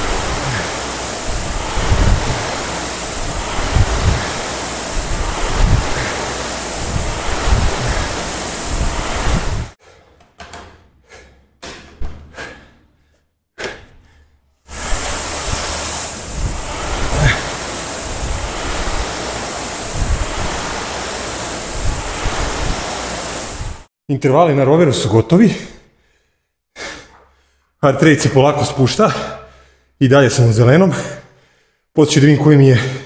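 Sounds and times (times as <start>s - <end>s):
rowing machine flywheel whirring: 0.0s - 9.8s, 14.7s - 23.9s.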